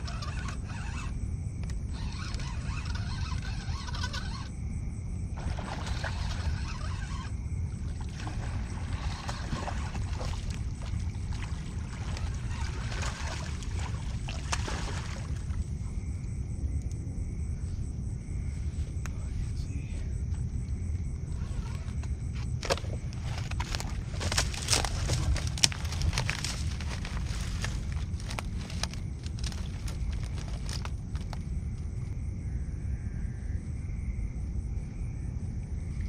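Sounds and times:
fishing reel cranking: 0.0s - 1.1s, 1.9s - 4.5s
steady low rumble: 4.5s - 6.6s, 7.3s - 36.0s.

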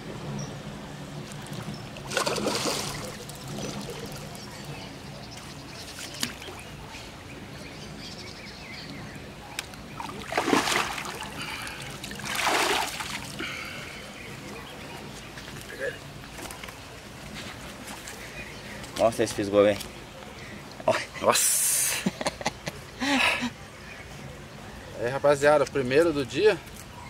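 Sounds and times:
fish splashing at water surface: 2.0s - 4.3s, 10.0s - 13.6s.

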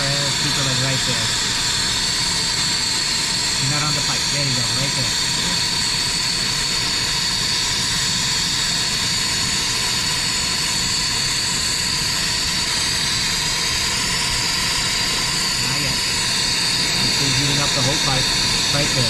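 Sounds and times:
torch flame hissing: 0.0s - 19.0s.

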